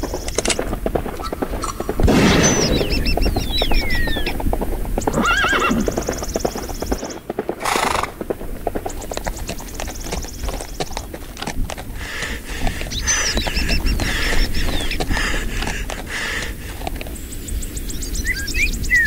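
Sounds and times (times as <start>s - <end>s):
galloping hoofbeats: 0.0s - 19.0s
horse whinnying: 5.0s - 6.2s, 7.6s - 8.2s.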